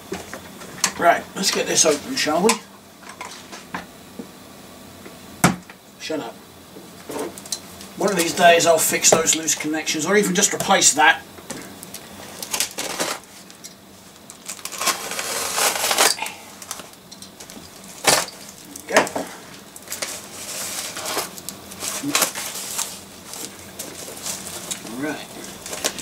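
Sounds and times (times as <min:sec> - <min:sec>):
knife ripping through packing tape: 0:14.4 - 0:16.8.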